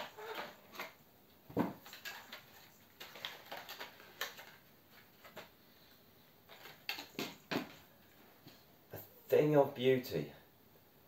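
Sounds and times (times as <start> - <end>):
packaging clicks and scrapes: 0.0 - 1.0, 1.8 - 5.6.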